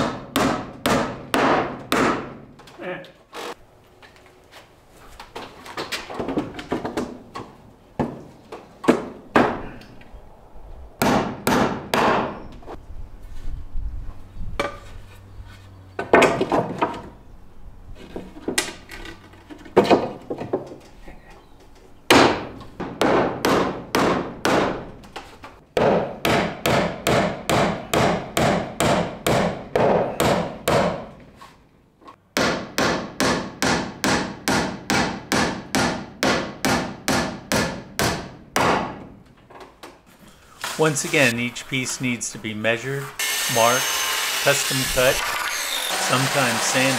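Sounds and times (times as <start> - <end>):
hammer nailing wooden boards: 0.0 - 2.4, 11.0 - 12.4, 22.1 - 25.0, 25.8 - 31.2, 32.3 - 39.2.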